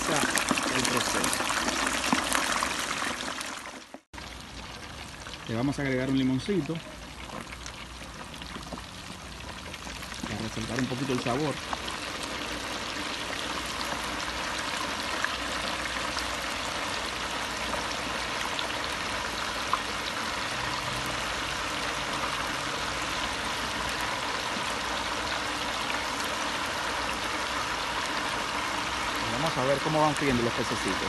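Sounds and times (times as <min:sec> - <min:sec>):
oil sizzling in deep fryer: 0:00.0 - 0:31.0.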